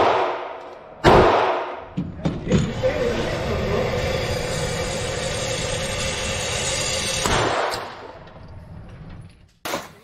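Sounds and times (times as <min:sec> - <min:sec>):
gunshot echo: 0:00.0 - 0:01.9.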